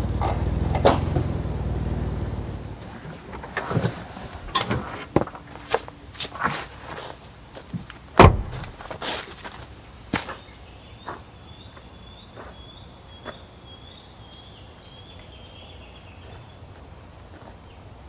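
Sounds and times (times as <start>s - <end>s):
heavy thump: 8.2s - 9.0s.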